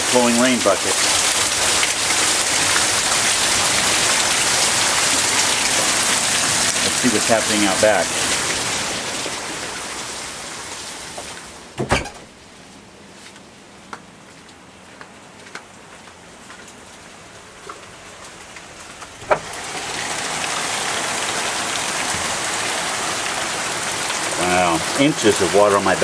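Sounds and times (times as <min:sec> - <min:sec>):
heavy rain pouring: 0:00.0 - 0:11.8, 0:16.8 - 0:26.0.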